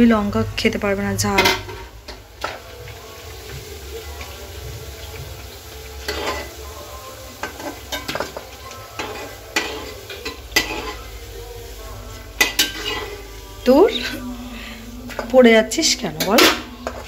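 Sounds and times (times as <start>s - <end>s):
food frying in hot oil: 0.0s - 17.0s
utensil clattering against pan: 1.4s - 2.7s, 7.4s - 11.0s, 12.4s - 13.2s, 16.2s - 17.0s.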